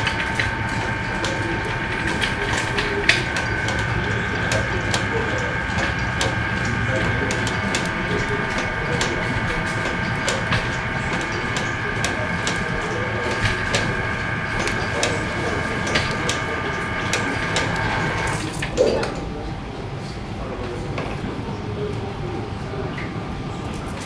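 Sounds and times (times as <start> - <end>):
machine whine and hum: 0.0 - 24.0.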